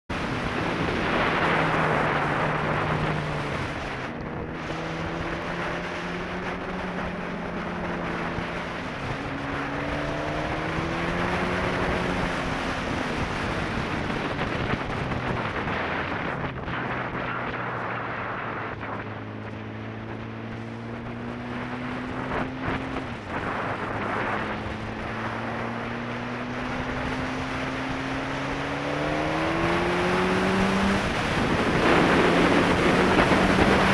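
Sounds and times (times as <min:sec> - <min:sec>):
wind rush on microphone: 0:00.1 - 0:33.9
sport bike engine revving: 0:20.0 - 0:33.9.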